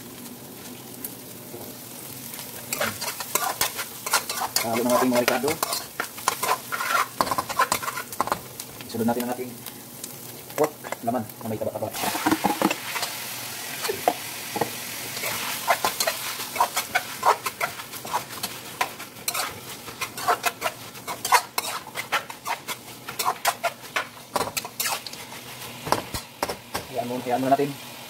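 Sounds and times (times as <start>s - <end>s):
meat sizzling in hot oil: 0.0s - 28.0s
metal spoon scraping pan: 2.7s - 8.4s, 15.2s - 26.6s.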